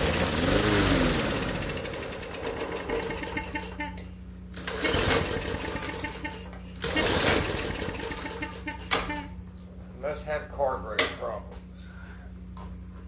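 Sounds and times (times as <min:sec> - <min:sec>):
engine recoil cord pulls: 0:00.0 - 0:03.9, 0:04.5 - 0:09.3.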